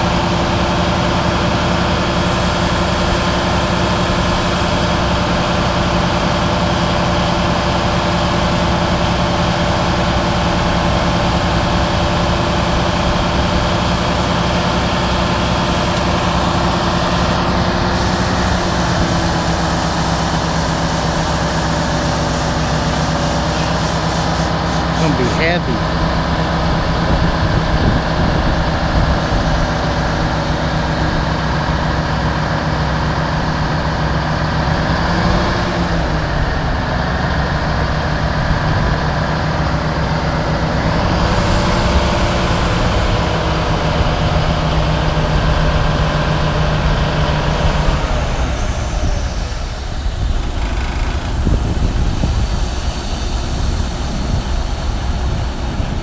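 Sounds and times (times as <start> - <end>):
heavy diesel engines running: 0.0 - 56.0
air hiss: 2.2 - 5.0, 17.9 - 25.4, 41.3 - 43.3, 48.9 - 56.0.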